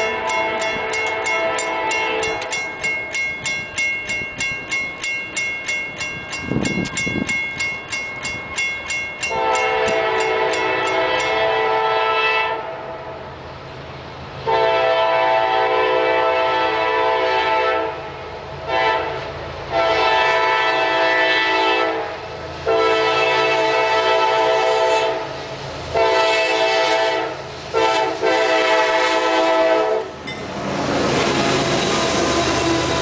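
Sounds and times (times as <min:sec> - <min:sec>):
locomotive horn blasts: 0:00.0 - 0:02.6, 0:09.3 - 0:13.1, 0:14.5 - 0:18.1, 0:18.7 - 0:25.3, 0:25.9 - 0:30.2
railroad crossing bell dinging: 0:00.0 - 0:11.7, 0:30.1 - 0:30.6.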